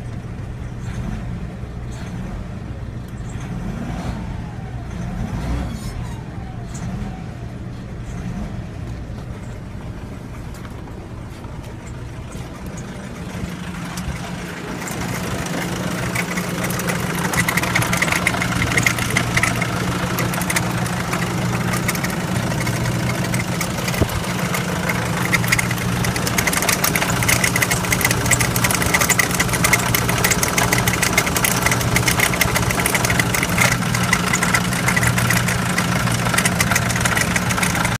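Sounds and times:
diesel engine idling: 0.0s - 38.0s
fast even ticking clatter: 10.6s - 38.0s.

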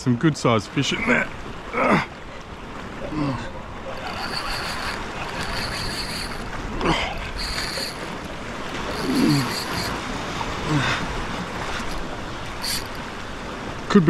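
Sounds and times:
thin high buzz: 3.9s - 10.1s, 11.6s - 13.2s.

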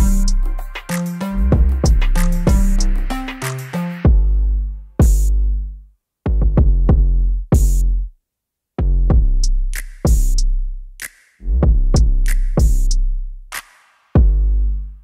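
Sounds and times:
electronic music with drum-machine beat: 0.0s - 5.3s.

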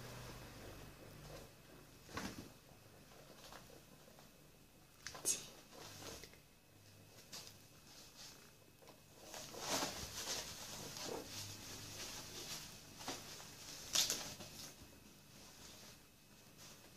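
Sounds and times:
pets rustling on fabric bed: 5.7s - 16.9s.

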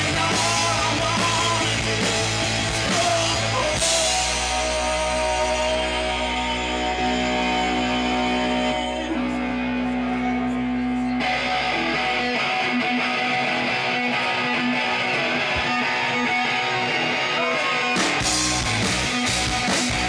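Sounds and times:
sustained low bass: 0.0s - 12.2s
live rock band: 0.0s - 20.0s
strummed electric guitar: 0.0s - 20.0s.

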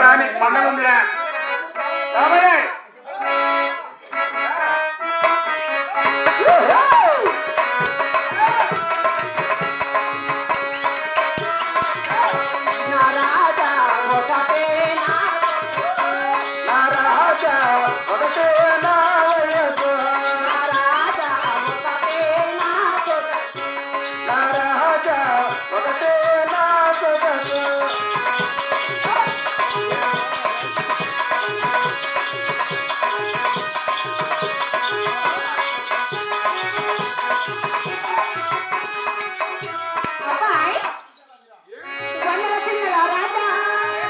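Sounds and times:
harmonium: 0.0s - 44.0s
hand drums: 5.2s - 41.4s
woman singing: 11.8s - 29.9s, 42.1s - 44.0s.

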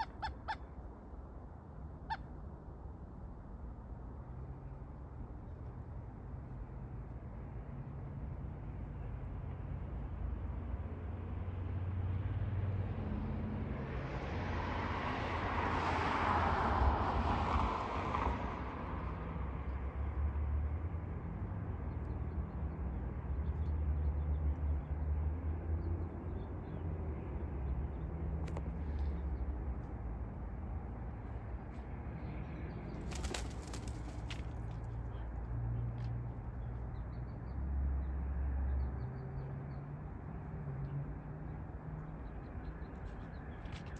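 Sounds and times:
car passing: 11.3s - 21.5s.

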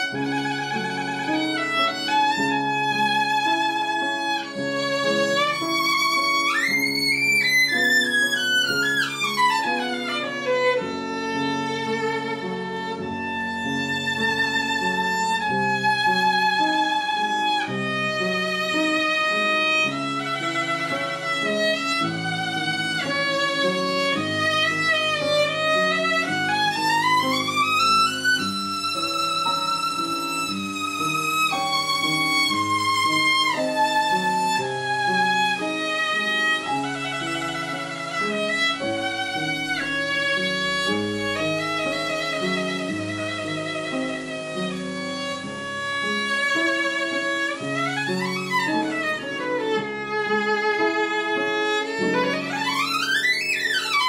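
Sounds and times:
violin melody with vibrato: 0.0s - 54.0s.

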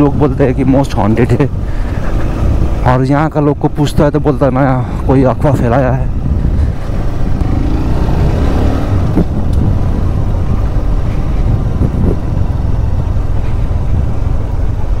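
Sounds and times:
motorcycle engine running: 0.0s - 15.0s
wind rushing on a helmet: 5.0s - 15.0s.

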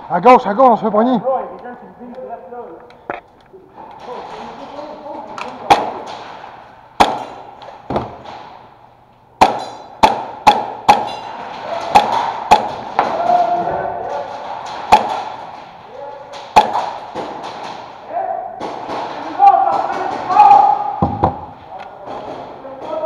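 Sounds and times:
airsoft guns firing: 5.5s - 8.6s, 9.4s - 23.0s
pellet impacts: 5.5s - 8.7s, 9.4s - 18.0s, 18.6s - 23.0s.

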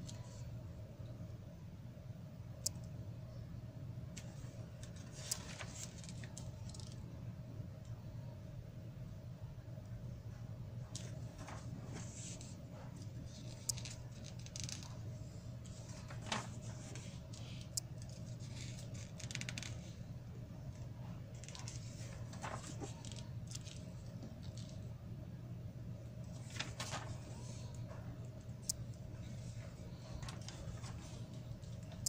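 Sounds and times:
steady low hum: 0.0s - 32.0s
magazine pages rustling: 4.2s - 7.0s, 11.0s - 15.0s, 15.6s - 20.0s, 21.3s - 24.9s, 26.3s - 28.0s, 29.1s - 31.9s.

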